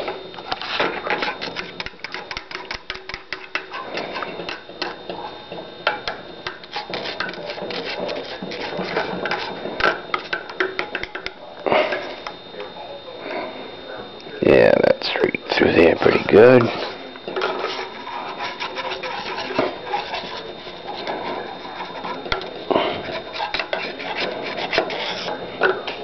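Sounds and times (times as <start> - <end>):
metal spoon scraping thick paste: 0.4 - 5.4, 6.4 - 10.4, 16.0 - 25.4.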